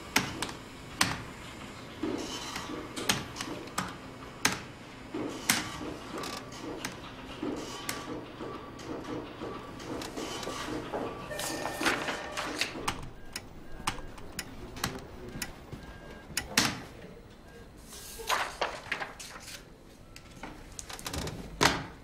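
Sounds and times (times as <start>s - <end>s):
keyboard typing clicks: 12.5s - 15.5s.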